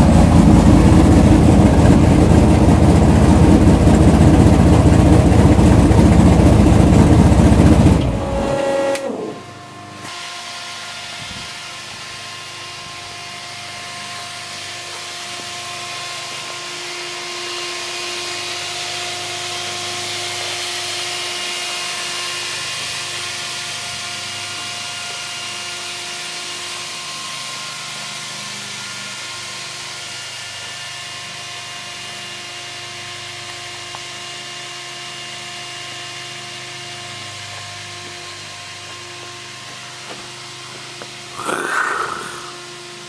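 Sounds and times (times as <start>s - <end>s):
engine stopping: 0.0s - 9.6s, 37.2s - 43.0s.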